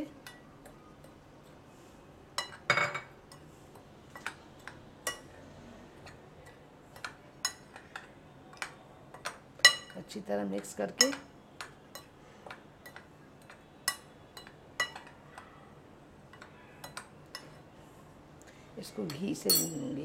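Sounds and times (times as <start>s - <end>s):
metal spoon clinking on glass bowl: 19.1s - 20.0s.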